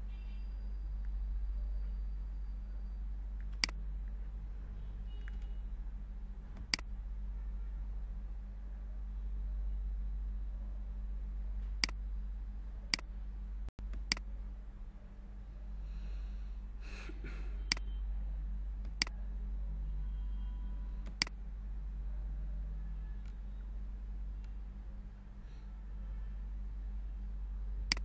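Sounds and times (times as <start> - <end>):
low electrical hum: 0.0 - 28.0
soft breathy noise: 15.4 - 17.6, 25.0 - 26.5.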